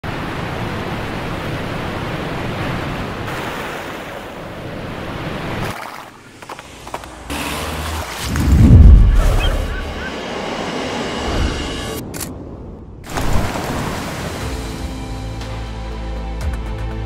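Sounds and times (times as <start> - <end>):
rushing water: 0.0 - 10.1, 13.0 - 15.4
small water splashes: 5.6 - 8.6, 13.1 - 14.6
deep low rumble: 8.3 - 10.2.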